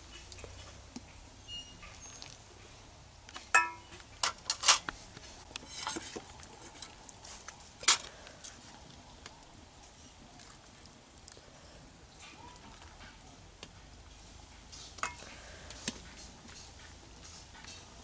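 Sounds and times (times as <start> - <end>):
ladle clinking on steel pots: 3.5 - 4.9, 14.9 - 15.4.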